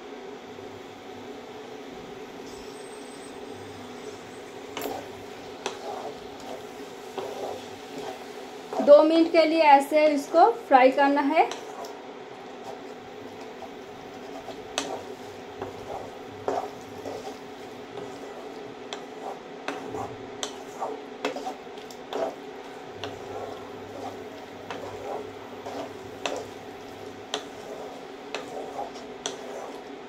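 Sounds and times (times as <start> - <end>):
steady low hum: 0.1 - 30.0
spatula scraping a pan: 2.5 - 30.0
spatula tapping a pan: 14.2 - 18.2, 18.8 - 22.4, 23.9 - 29.8.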